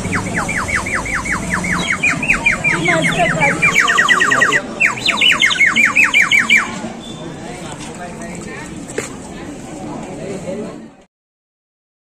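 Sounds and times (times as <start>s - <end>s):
water whistle warbling chirps: 0.0s - 7.2s.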